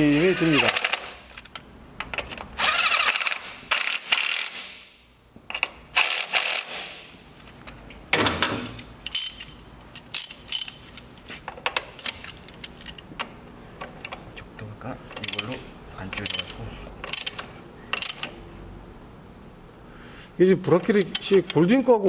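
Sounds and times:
hand ratchet clicking: 0:00.6 - 0:04.9, 0:05.6 - 0:06.9, 0:16.2 - 0:18.4
impact driver bursts: 0:02.6 - 0:04.8, 0:06.0 - 0:07.0.

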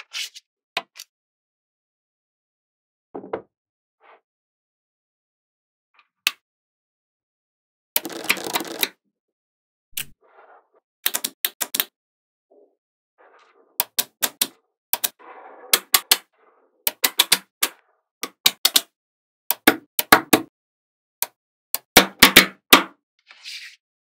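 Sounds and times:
short scraping noises: 0:23.3 - 0:23.8.

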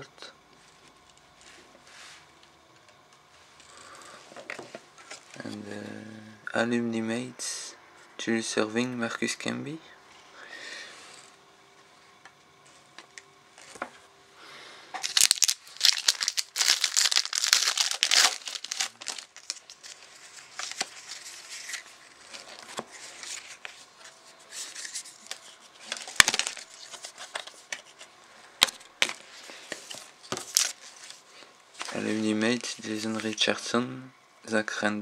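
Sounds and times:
plastic wrapper tearing and crinkling: 0:15.0 - 0:23.8, 0:24.6 - 0:28.0, 0:29.8 - 0:31.2.

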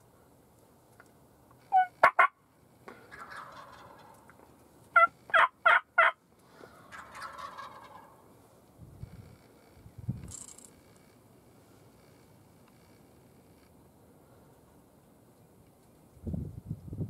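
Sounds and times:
wild turkeys calling: 0:01.6 - 0:08.3.

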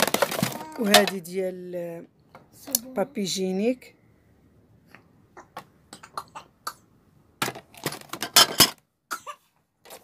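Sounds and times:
hard plastic pieces clicking: 0:00.0 - 0:01.2
plastic clattering and scraping: 0:00.0 - 0:01.4, 0:07.4 - 0:08.8, 0:09.8 - 0:10.0.

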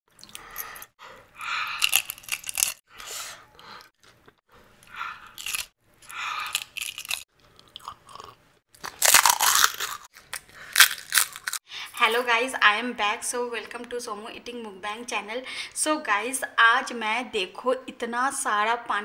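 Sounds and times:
crunching and chewing: 0:01.5 - 0:02.8, 0:03.8 - 0:11.6.

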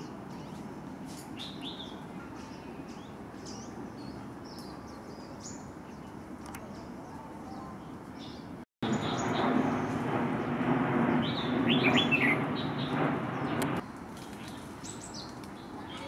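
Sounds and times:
small songbird chirping: 0:00.0 - 0:09.9.

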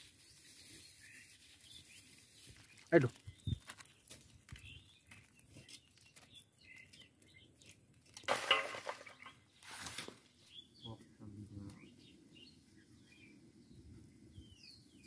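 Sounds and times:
birds chirping faintly: 0:00.1 - 0:15.0
rustling splashes: 0:08.1 - 0:10.2
florets dropped into metal bowl: 0:08.2 - 0:09.3.

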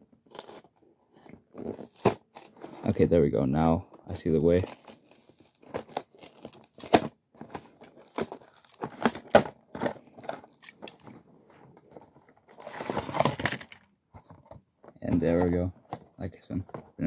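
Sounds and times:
plastic packaging crackling: 0:04.5 - 0:11.0.

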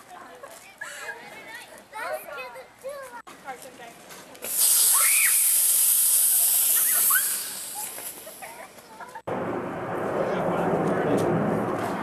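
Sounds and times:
sprinkler spray hissing: 0:04.4 - 0:09.1
children squealing: 0:04.8 - 0:05.6, 0:06.8 - 0:08.0.

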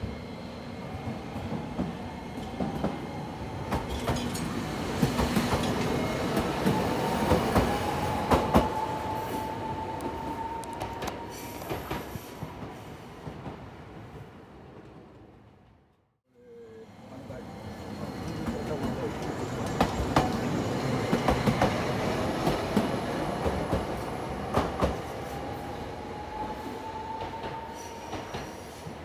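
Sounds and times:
tram wheels clicking over rail joints: 0:03.7 - 0:08.7.

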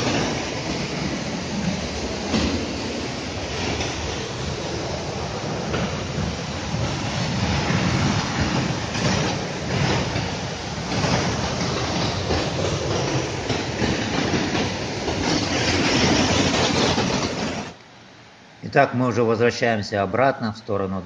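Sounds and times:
waterfall roaring: 0:00.0 - 0:12.3.

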